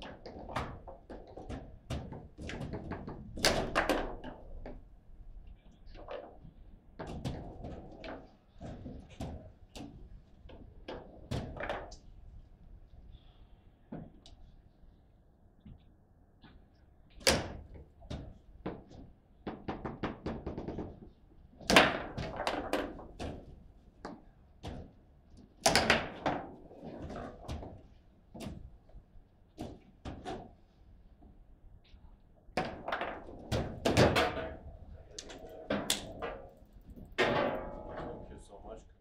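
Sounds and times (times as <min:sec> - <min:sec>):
foosball rods sliding and slamming: 0:32.6 - 0:38.2.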